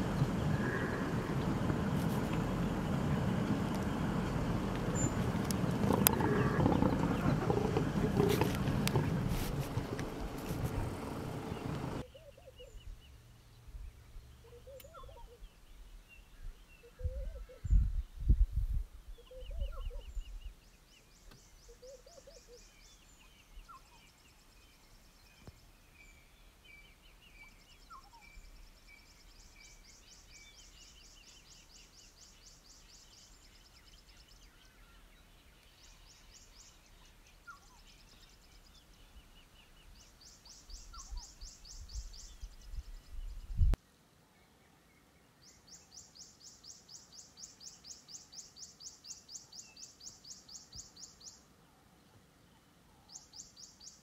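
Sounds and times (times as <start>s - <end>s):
low rumble: 0.0s - 12.0s
birds calling and chirping: 0.0s - 18.2s, 19.1s - 43.8s.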